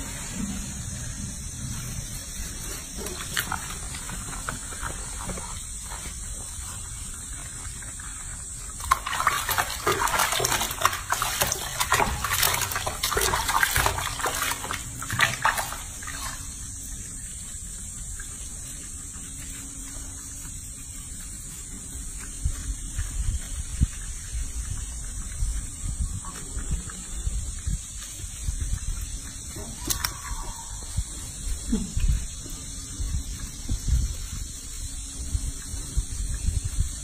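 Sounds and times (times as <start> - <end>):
water splashing in a sink: 8.8 - 16.5
hands scrubbing: 8.8 - 16.6.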